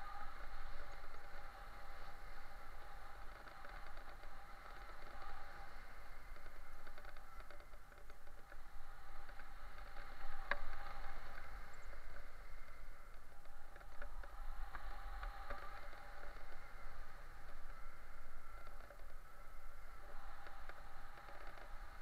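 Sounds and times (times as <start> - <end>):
light ticks: 0.0 - 22.0
muffled wind rush: 0.0 - 22.0.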